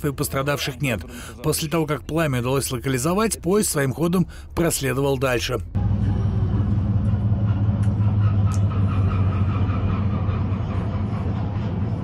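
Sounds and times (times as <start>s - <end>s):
low engine drone: 5.7s - 12.0s.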